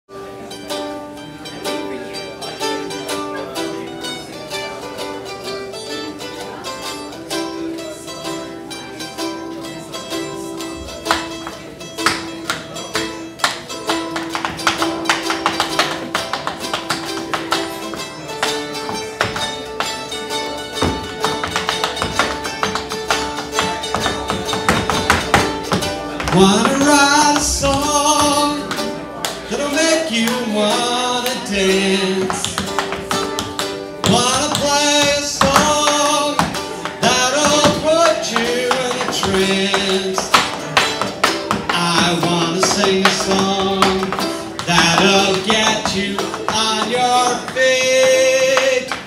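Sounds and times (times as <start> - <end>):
instrumental guitar music: 0.1 - 49.0
tap shoes clicking on floor: 11.0 - 20.1, 20.7 - 29.4, 32.2 - 49.0.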